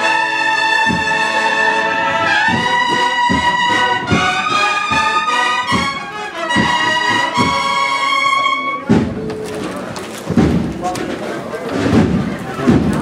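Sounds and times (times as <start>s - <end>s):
brass band playing march: 0.0s - 13.0s
bass drum beat: 10.3s - 11.0s.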